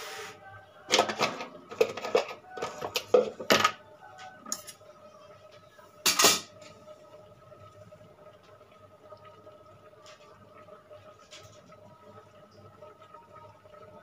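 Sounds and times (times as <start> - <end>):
metal utensils and pots clattering: 0.9 - 3.8, 4.4 - 4.8, 6.1 - 6.6.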